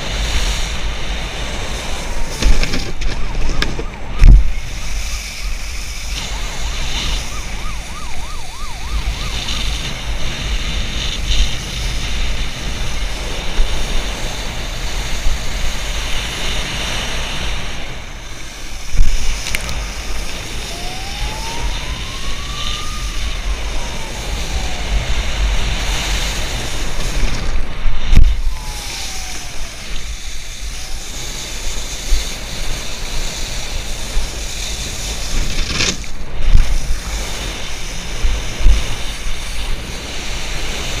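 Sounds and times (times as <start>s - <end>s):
wind buffeting microphone: 0.0s - 41.0s
faint whine: 17.9s - 33.2s
water spray hissing: 28.1s - 41.0s.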